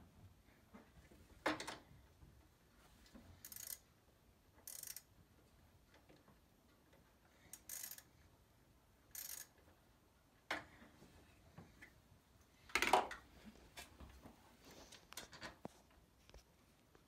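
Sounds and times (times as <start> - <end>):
wrench clicking and scraping: 3.4 - 3.9, 4.6 - 5.1, 7.5 - 8.1, 9.1 - 9.6.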